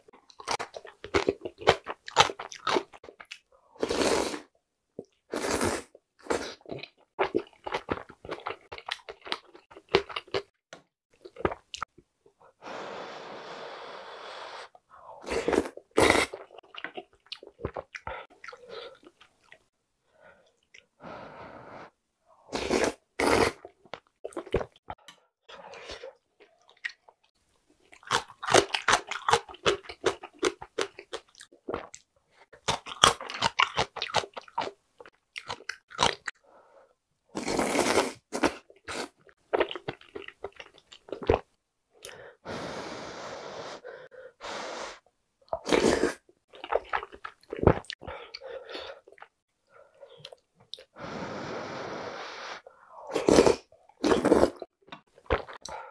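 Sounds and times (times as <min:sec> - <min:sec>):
crunchy chewing of food: 0:00.2 - 0:04.5, 0:27.8 - 0:36.3, 0:37.4 - 0:41.5, 0:45.5 - 0:48.4.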